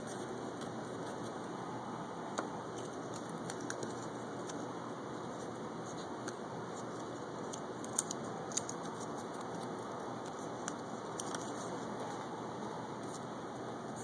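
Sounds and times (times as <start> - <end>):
steady background hiss: 0.0 - 14.0
paper crinkling: 2.7 - 4.7, 5.3 - 12.3.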